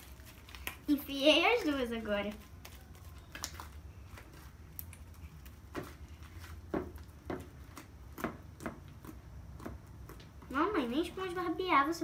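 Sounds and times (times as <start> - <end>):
slime squishing and popping: 2.5 - 6.0.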